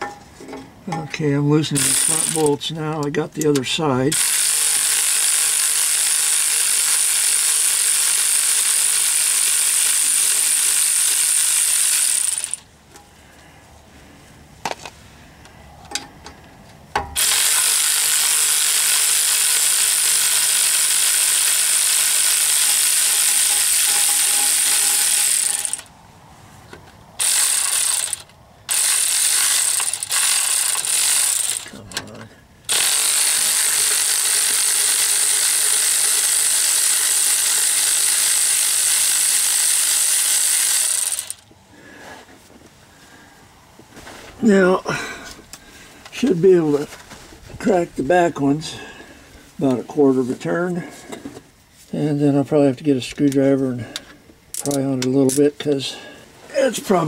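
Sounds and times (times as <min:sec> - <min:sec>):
electric ratchet motor whirr: 0:01.8 - 0:02.5, 0:04.1 - 0:12.7, 0:17.2 - 0:25.9, 0:27.2 - 0:31.8, 0:32.7 - 0:41.5
ratchet clicks: 0:01.8 - 0:12.7, 0:17.2 - 0:25.9, 0:27.2 - 0:32.1, 0:32.7 - 0:41.5.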